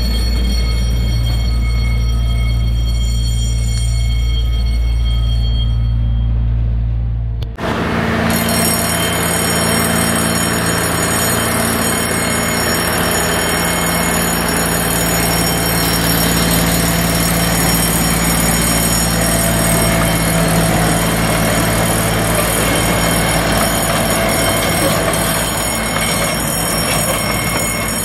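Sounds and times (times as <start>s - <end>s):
train engine hum: 0.0s - 28.0s
wheels rolling on track: 7.6s - 28.0s.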